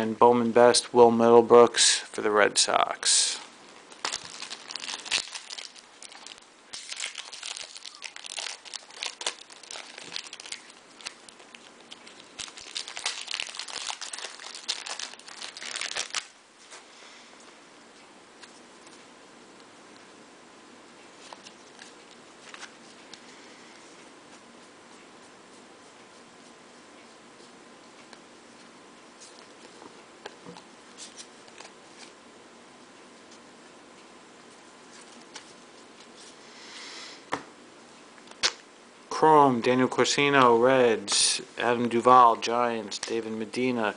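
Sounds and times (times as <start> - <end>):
foil wrapper crinkling and tearing: 3.9 - 16.4.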